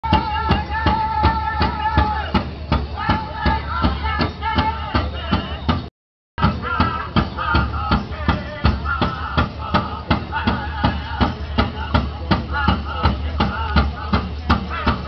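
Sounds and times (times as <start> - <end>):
large drum beating: 0.0 - 15.0
group of people singing: 6.6 - 15.0.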